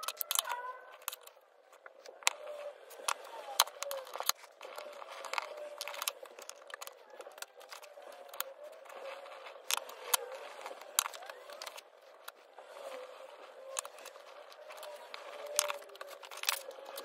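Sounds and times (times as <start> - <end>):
paper rustling and crinkling: 0.0 - 17.0.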